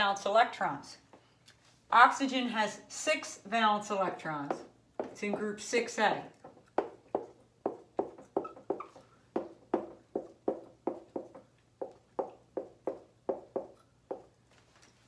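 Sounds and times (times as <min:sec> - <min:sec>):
marker tapping on whiteboard: 0:04.4 - 0:05.6, 0:06.4 - 0:14.4.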